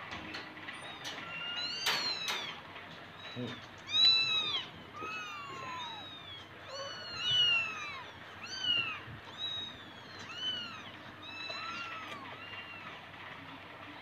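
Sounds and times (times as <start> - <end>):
kittens mewing: 0.8 - 13.1.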